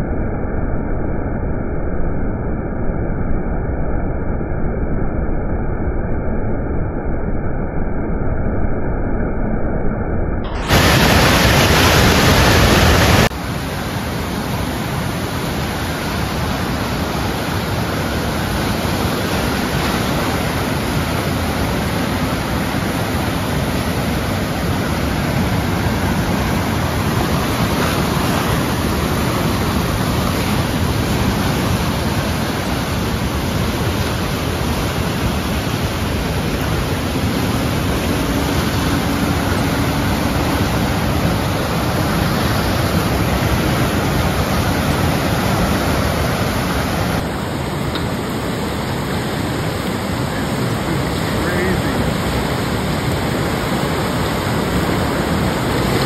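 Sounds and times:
flood water rushing: 0:10.5 - 0:56.0.

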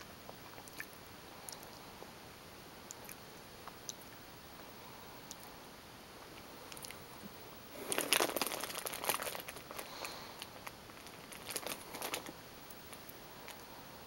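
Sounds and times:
plastic packaging crinkling: 0:07.7 - 0:13.6.

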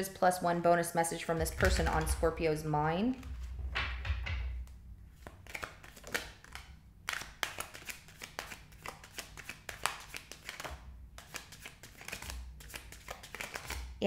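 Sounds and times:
cards being shuffled: 0:04.6 - 0:14.0.

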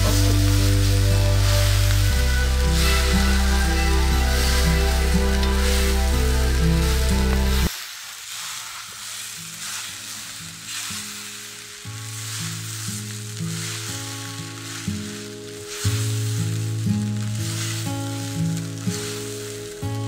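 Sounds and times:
background music: 0:00.0 - 0:07.7
spatula scraping wok: 0:00.0 - 0:16.4
rice sizzling in a wok: 0:00.0 - 0:20.0.

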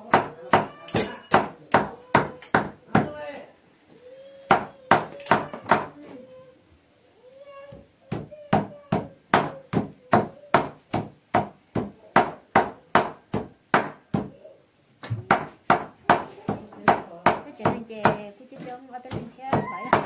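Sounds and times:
cleaver chopping meat on wood: 0:00.0 - 0:03.2, 0:08.1 - 0:14.3, 0:15.2 - 0:18.2, 0:19.1 - 0:20.0.

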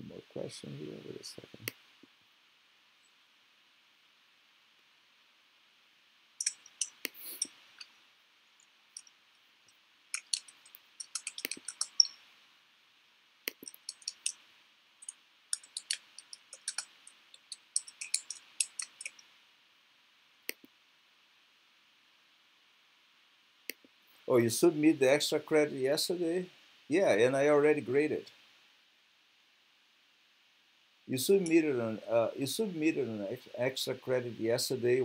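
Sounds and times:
computer mouse clicking: 0:06.4 - 0:07.9, 0:10.2 - 0:12.2, 0:13.5 - 0:14.4, 0:15.0 - 0:19.2.

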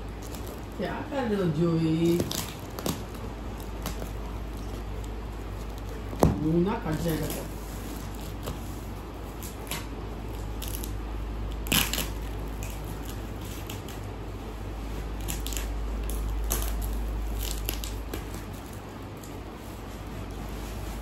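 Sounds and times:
plastic packaging crinkling: 0:00.0 - 0:21.0
steady low hum: 0:00.0 - 0:21.0.

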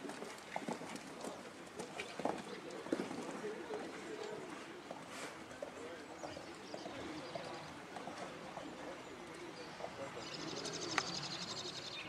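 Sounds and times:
small birds chirping: 0:05.8 - 0:12.0.

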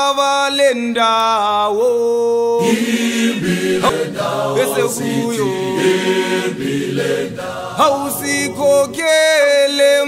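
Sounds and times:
group singing unaccompanied: 0:02.6 - 0:10.0.

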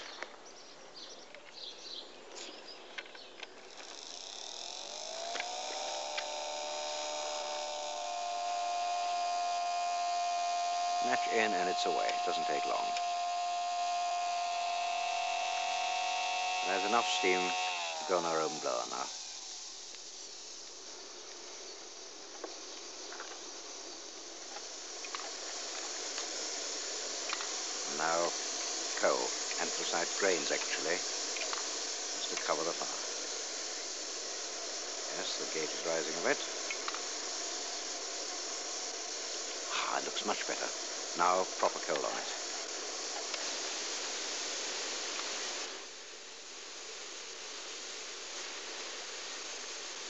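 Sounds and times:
faint ticks: 0:02.4 - 0:08.3, 0:19.8 - 0:23.5, 0:24.5 - 0:26.4, 0:27.2 - 0:27.6, 0:30.6 - 0:33.2, 0:34.7 - 0:37.6, 0:43.1 - 0:43.6
steam hissing from model locomotive: 0:03.6 - 0:50.0
electric blower fan whine: 0:03.7 - 0:20.7, 0:22.4 - 0:45.9.

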